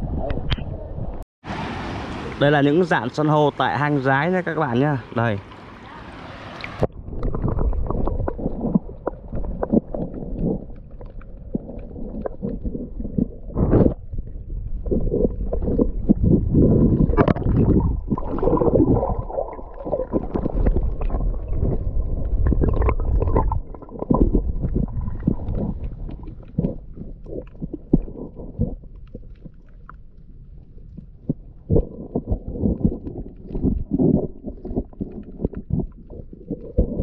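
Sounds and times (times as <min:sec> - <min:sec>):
underwater gurgling and rumbling: 0:00.0 - 0:37.0
knocks underwater: 0:06.8 - 0:30.0, 0:30.8 - 0:37.0.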